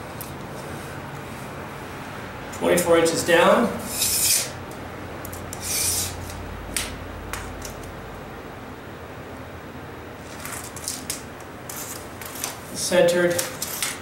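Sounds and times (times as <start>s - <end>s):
scraping rubs: 3.9s - 4.5s, 5.5s - 6.3s.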